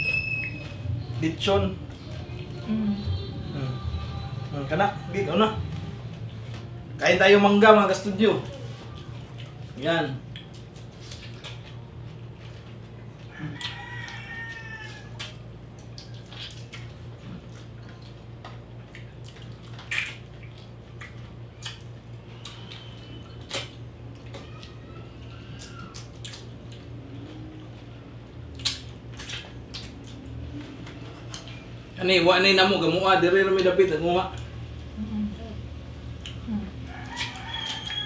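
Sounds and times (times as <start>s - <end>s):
low electrical hum: 0.0s - 38.0s
wet mouth clicks and slurps: 15.2s - 23.8s, 28.5s - 30.4s.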